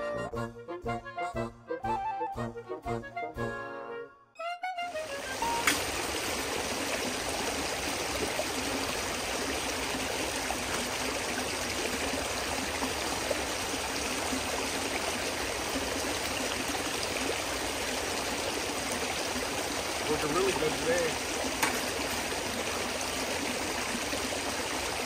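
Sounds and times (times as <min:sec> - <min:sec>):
water rushing over rocks: 0:05.0 - 0:25.0.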